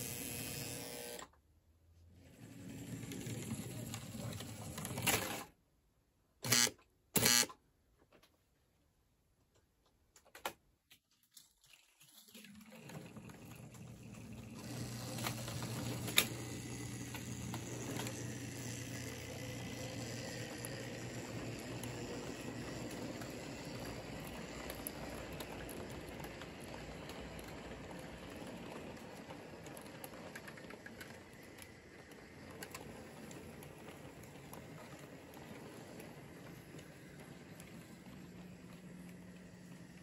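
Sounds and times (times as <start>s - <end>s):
model train wheels rattling: 2.4s - 5.5s, 12.1s - 40.0s.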